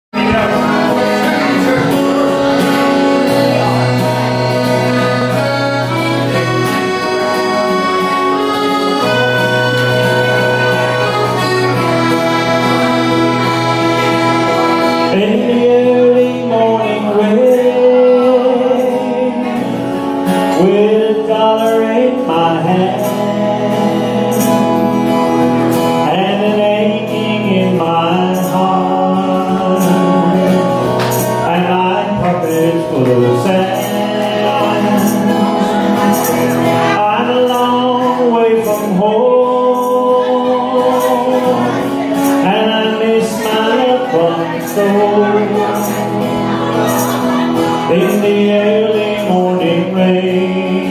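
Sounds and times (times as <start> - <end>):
accordion: 0.1 - 50.9
strummed acoustic guitar: 0.1 - 50.9
man singing a ballad: 15.1 - 25.2, 25.8 - 50.9.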